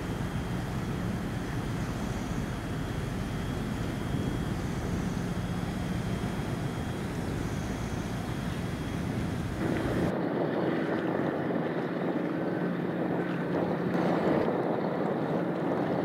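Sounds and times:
faint low hum: 0:00.0 - 0:10.1
tugboat engine drone: 0:00.0 - 0:16.0
wind rumbling on microphone: 0:00.0 - 0:16.0.

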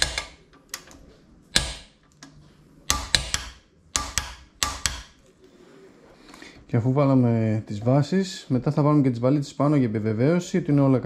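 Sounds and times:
tools clicking and knocking: 0:00.0 - 0:05.2.

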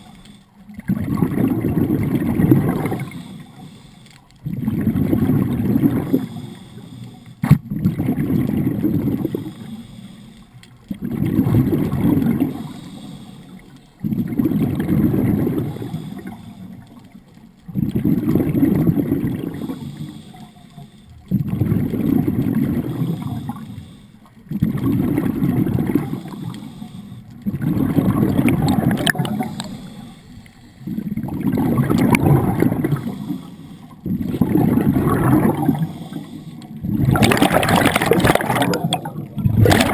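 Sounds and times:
regulator exhaust bubbles: 0:30.9 - 0:33.0, 0:34.1 - 0:35.9, 0:36.8 - 0:39.9.

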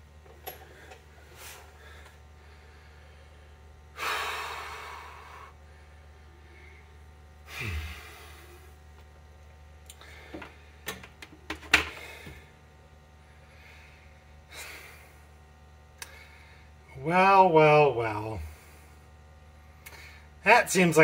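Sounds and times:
low steady hum: 0:00.0 - 0:21.0
person sighing: 0:07.5 - 0:08.6.

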